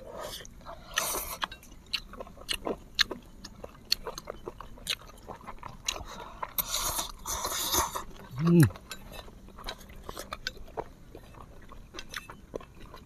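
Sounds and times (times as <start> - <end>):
chewing and slurping noodles: 0.0 - 13.0.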